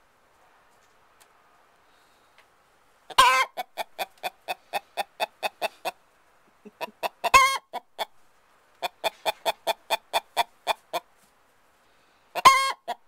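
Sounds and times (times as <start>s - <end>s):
hen clucking: 3.1s - 8.2s, 8.8s - 11.1s, 12.3s - 13.0s.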